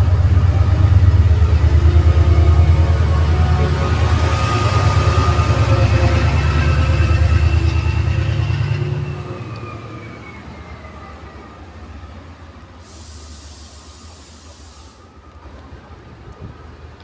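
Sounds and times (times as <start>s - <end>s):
diesel locomotive passing: 0.0s - 17.0s
high hiss: 12.7s - 15.3s.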